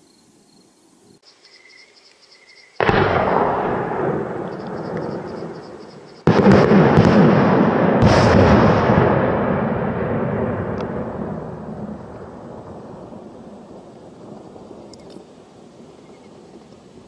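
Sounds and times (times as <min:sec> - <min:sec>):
crickets chirping faintly: 0:00.0 - 0:02.9, 0:04.2 - 0:06.3, 0:12.0 - 0:17.0
firework launch bang: 0:02.8 - 0:04.9, 0:06.3 - 0:12.3.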